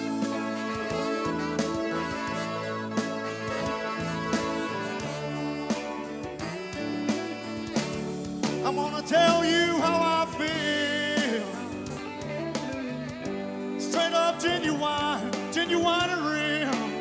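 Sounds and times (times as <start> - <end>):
guitar accompaniment: 0.0 - 17.0
man singing: 8.5 - 12.2, 13.8 - 17.0.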